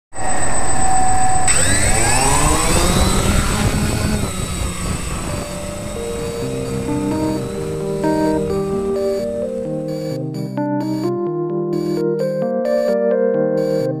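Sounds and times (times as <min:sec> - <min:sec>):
drone motors whining: 0:00.2 - 0:10.5
rush of rotor wash: 0:01.5 - 0:09.5.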